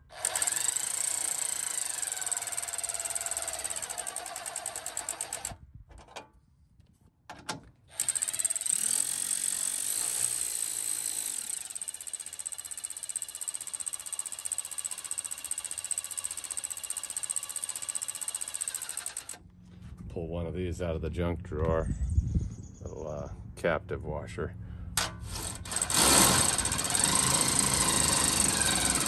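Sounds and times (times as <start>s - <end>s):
electric ratchet running: 0.0s - 5.5s, 7.9s - 19.4s, 25.2s - 29.0s.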